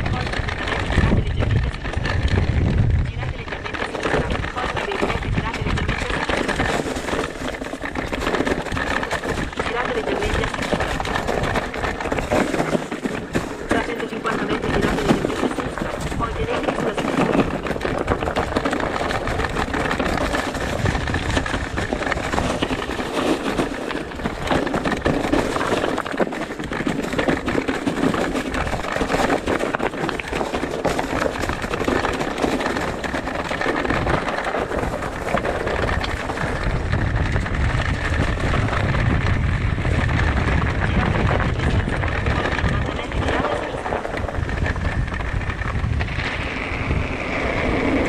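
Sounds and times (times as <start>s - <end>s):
low rumble: 0.0s - 12.4s, 35.2s - 48.0s
bike tyres on rough trail: 0.0s - 48.0s.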